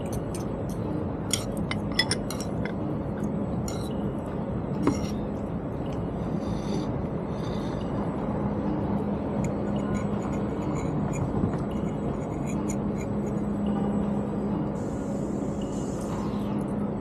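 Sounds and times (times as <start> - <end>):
dishes and cutlery clinking: 0.0 - 2.8, 4.8 - 5.2
low hum: 0.0 - 17.0.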